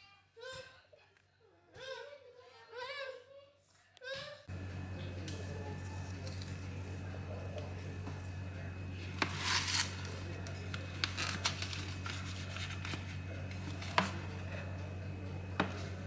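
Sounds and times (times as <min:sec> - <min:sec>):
steady low hum: 0:04.5 - 0:16.0.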